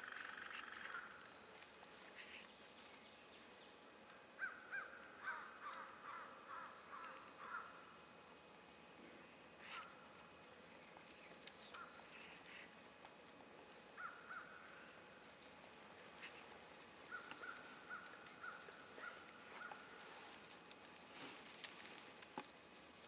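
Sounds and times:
faint animal calls: 0.0s - 2.6s, 4.4s - 8.0s, 9.6s - 10.1s, 11.6s - 13.0s, 13.9s - 15.2s, 16.0s - 20.2s
leaf litter clicks: 17.1s - 23.0s.

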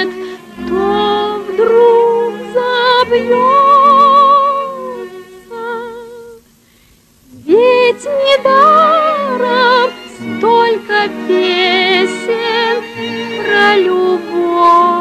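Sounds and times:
instrumental accompaniment: 0.0s - 6.1s, 7.3s - 15.0s
woman singing: 0.0s - 6.4s, 7.3s - 15.0s.

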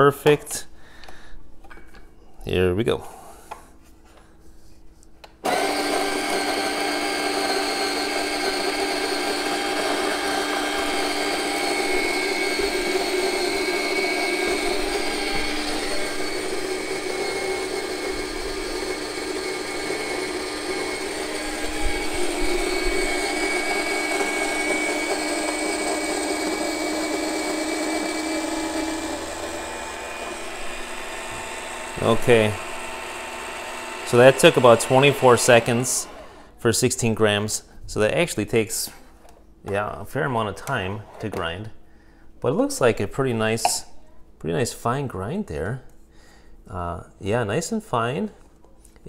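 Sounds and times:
coffee grinder grinding beans: 5.5s - 36.4s.

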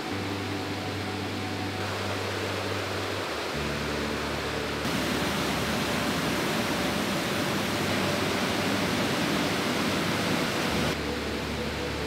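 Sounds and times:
waterfall pouring: 4.8s - 11.0s.

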